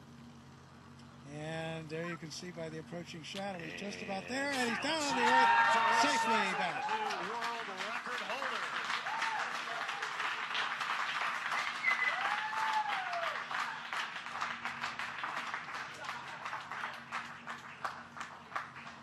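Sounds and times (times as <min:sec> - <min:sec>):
people applauding: 0:03.6 - 0:19.0
whoops and cheers: 0:04.6 - 0:07.4, 0:08.9 - 0:10.3, 0:11.5 - 0:13.8.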